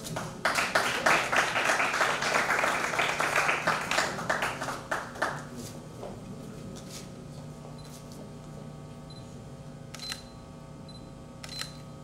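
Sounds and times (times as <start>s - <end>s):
audience applauding: 0.2s - 5.5s.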